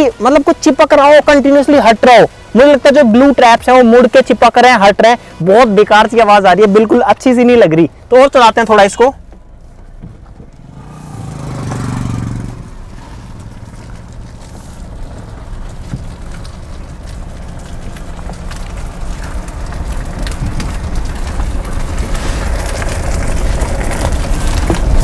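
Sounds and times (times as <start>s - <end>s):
glue crackling and ripping: 8.2s - 25.0s.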